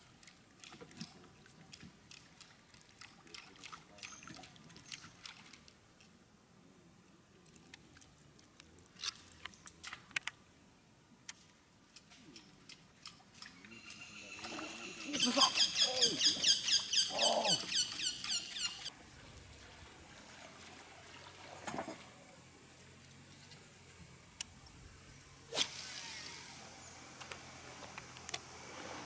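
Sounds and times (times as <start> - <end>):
animal high chirps: 14.9 - 18.9.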